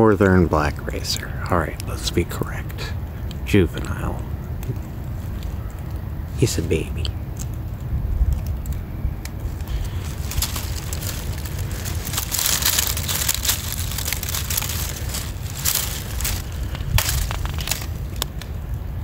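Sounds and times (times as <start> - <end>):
low rumble: 0.0 - 19.0
dry leaves crunching: 9.3 - 18.9.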